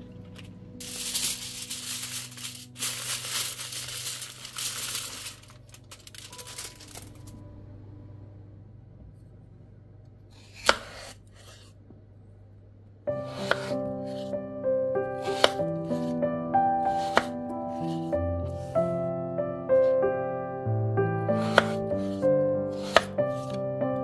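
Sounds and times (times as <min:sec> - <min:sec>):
aluminium foil crinkling: 0:00.3 - 0:07.4.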